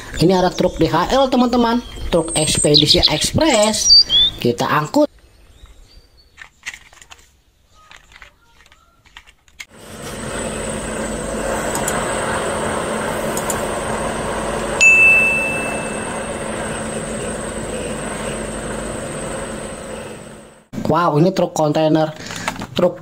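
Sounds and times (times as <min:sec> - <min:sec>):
engine-like running noise: 0:09.7 - 0:20.7
faint hum: 0:09.7 - 0:20.7
thin high whine: 0:09.7 - 0:20.7
high ding: 0:14.8 - 0:16.4.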